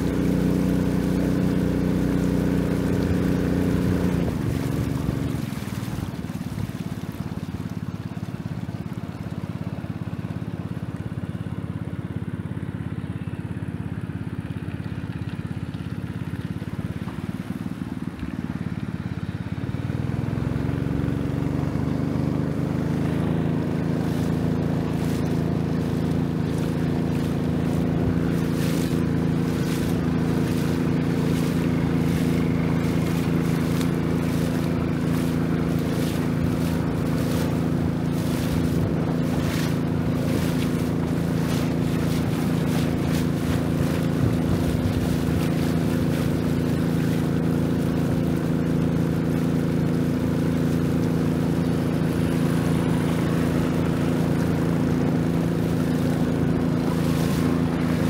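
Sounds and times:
boat engine droning: 0.0 - 58.0
short rushing noises: 23.9 - 46.3.

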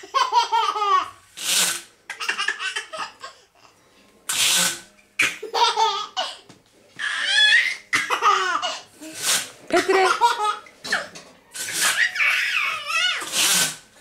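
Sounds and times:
baby laughing: 0.0 - 1.2, 2.1 - 3.4, 5.2 - 6.4, 7.0 - 8.9, 9.8 - 11.1, 11.8 - 13.3.

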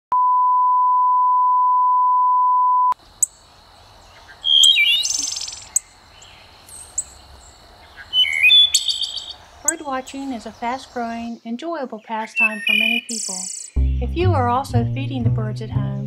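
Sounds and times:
bird song ending in trill: 12.2 - 14.4
bird chip notes: 12.2 - 16.0.

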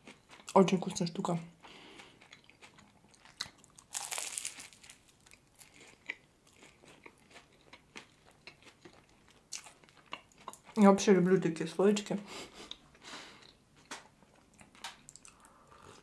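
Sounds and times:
faint chewing: 0.0 - 10.9, 12.5 - 16.0
biting crunchy pastry: 1.9 - 10.8.

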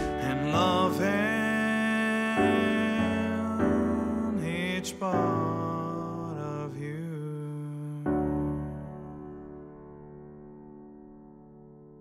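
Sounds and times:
slow keyboard music: 0.0 - 12.0.

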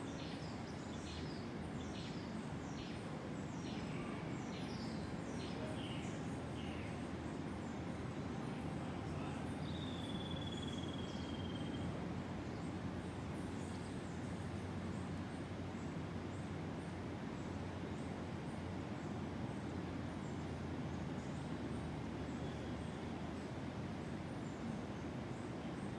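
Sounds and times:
distant ocean surf rumble: 0.0 - 25.9
faint high chirps: 9.7 - 11.9.

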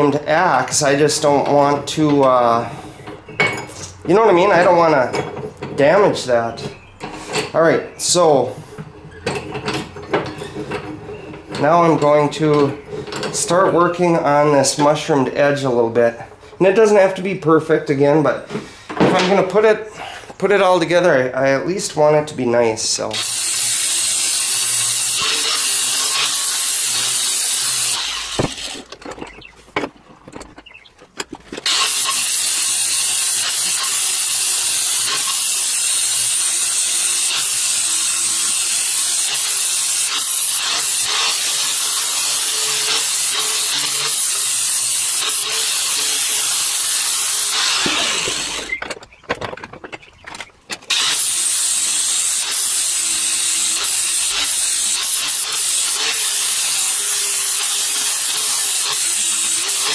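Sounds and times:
angle grinder grinding steel: 23.0 - 29.5, 31.6 - 49.0, 50.8 - 59.9.

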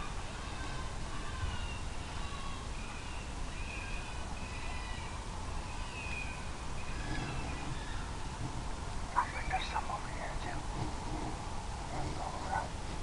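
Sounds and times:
high squealing animal calls: 0.0 - 8.3.

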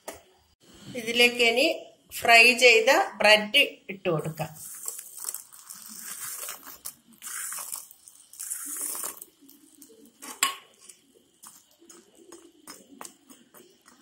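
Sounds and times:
fried bread cubes rustling: 4.6 - 14.0.

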